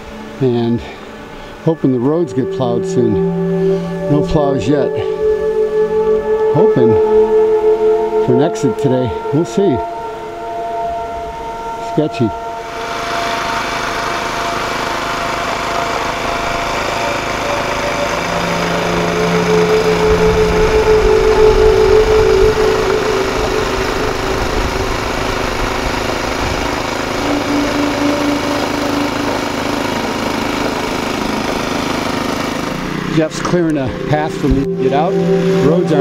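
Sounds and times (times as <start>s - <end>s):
snowblower engine running: 0.0s - 10.4s, 11.0s - 36.0s.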